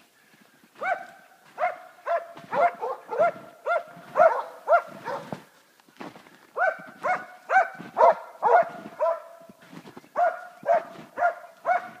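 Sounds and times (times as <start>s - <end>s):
dog barking: 0.8s - 5.5s, 6.6s - 9.5s, 10.1s - 12.0s.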